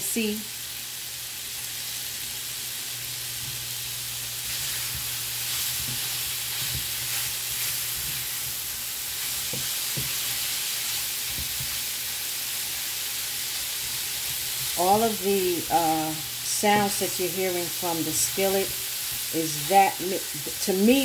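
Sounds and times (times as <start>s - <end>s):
sausage sizzling in a frying pan: 0.0s - 21.0s.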